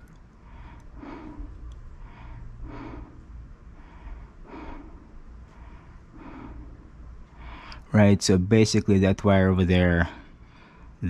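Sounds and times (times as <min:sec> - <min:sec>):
low steady rumble: 0:00.0 - 0:11.0
person breathing: 0:00.4 - 0:08.0, 0:10.0 - 0:11.0.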